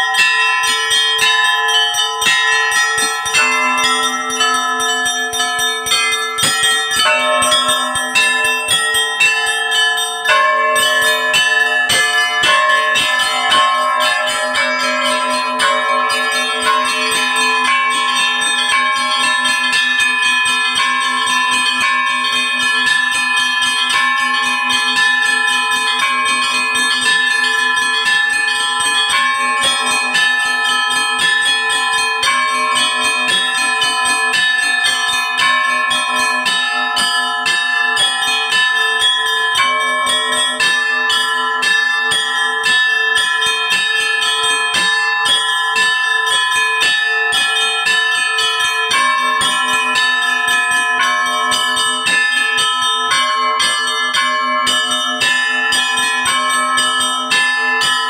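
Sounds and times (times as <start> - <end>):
large bells ringing: 0.0 - 58.0
small bells struck rapidly: 0.0 - 58.0.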